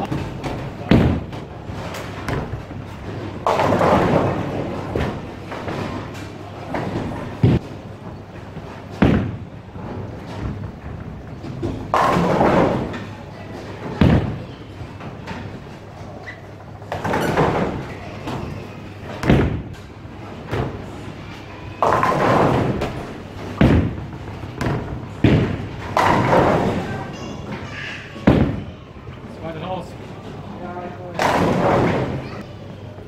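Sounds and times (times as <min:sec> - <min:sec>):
bowling pins crashing: 0:00.0 - 0:15.8, 0:21.8 - 0:28.8, 0:31.2 - 0:32.4
bowling balls thudding and rolling: 0:00.0 - 0:29.4, 0:30.0 - 0:33.0.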